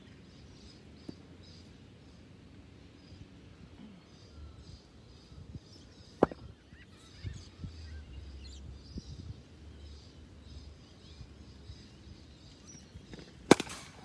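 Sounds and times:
birds chirping faintly: 0.0 - 14.0
cricket bat striking ball: 6.2 - 6.4, 13.1 - 14.0.

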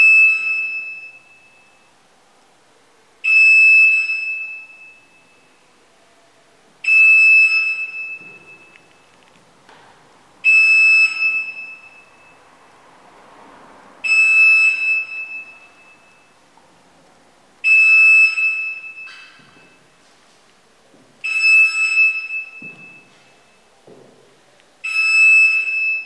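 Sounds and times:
loud electronic beep: 10.5 - 12.4, 14.0 - 16.4.

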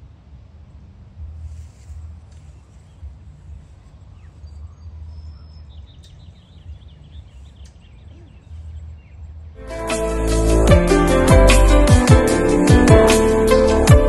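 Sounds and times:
bird chirps: 3.9 - 9.3
music: 9.6 - 14.0.

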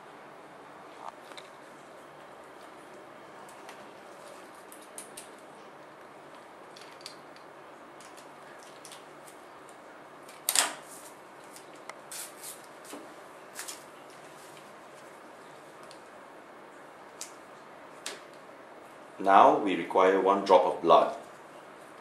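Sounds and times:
faint room hiss: 0.0 - 22.0.

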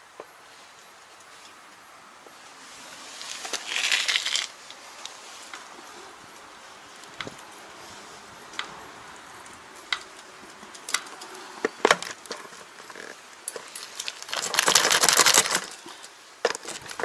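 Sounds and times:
loud scraping rattle: 11.8 - 15.8.

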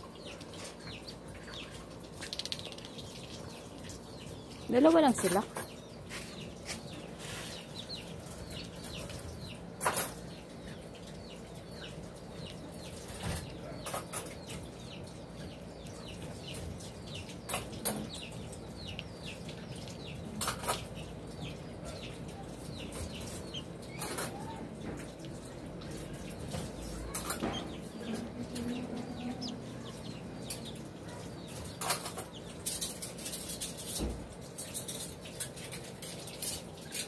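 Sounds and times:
chicks peeping: 0.0 - 37.0
beaks tapping on foil plate: 16.2 - 37.0.

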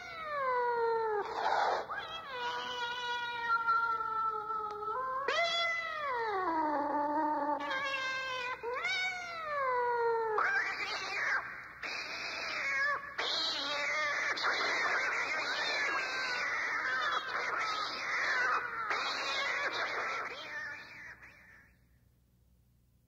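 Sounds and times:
cat hissing: 0.0 - 4.2, 10.4 - 21.2
cat yowling: 0.0 - 21.3.

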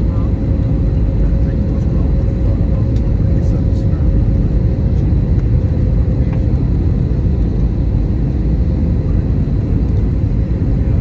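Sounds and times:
aircraft engines rumbling: 0.0 - 11.0.

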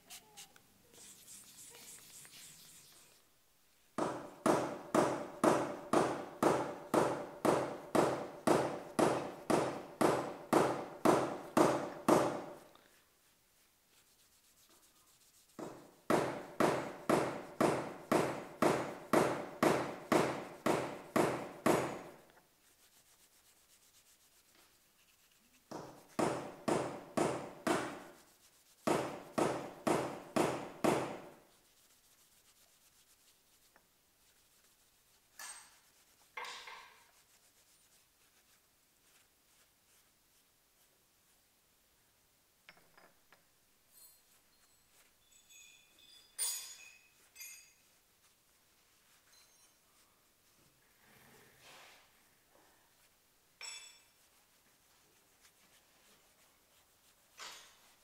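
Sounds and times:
sandpaper rubbing on metal: 0.0 - 3.3, 13.3 - 17.6, 22.6 - 26.6, 27.4 - 30.3, 31.2 - 36.4, 37.0 - 40.1.

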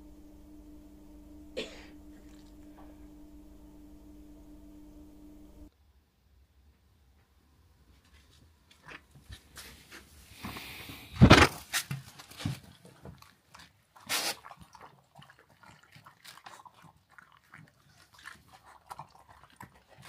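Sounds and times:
dog sniffing and eating: 11.7 - 20.0.

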